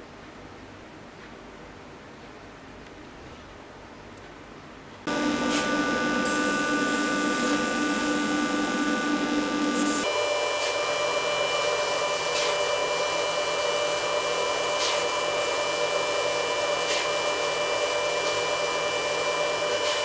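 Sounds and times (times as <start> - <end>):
steady mechanical hum: 0.0 - 20.0
spray paint hissing: 11.7 - 20.0.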